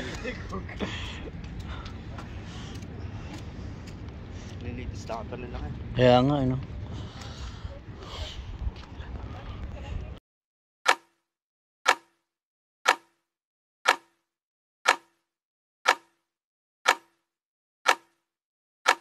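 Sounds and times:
clock ticking: 11.9s - 12.1s, 12.9s - 13.1s, 13.9s - 14.1s, 14.9s - 15.1s, 15.9s - 16.1s, 16.9s - 17.1s, 17.9s - 18.1s.

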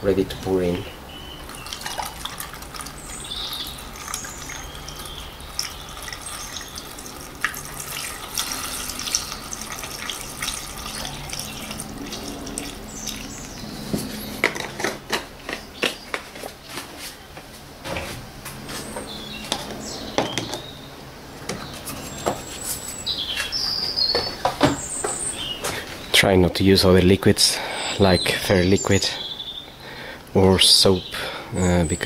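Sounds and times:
fluid pouring through a funnel: 1.5s - 13.6s.

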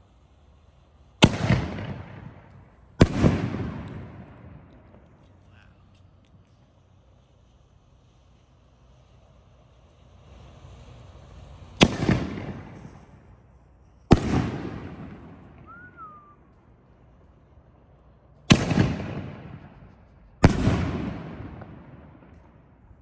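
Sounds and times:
firework shell booms with echo: 1.2s - 6.6s, 11.1s - 13.4s, 14.1s - 16.2s, 18.5s - 23.0s.

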